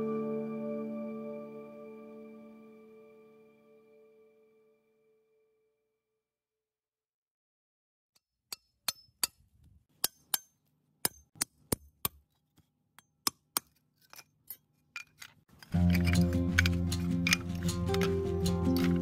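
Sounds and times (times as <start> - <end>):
clay bricks clinking: 13.4 - 19.0.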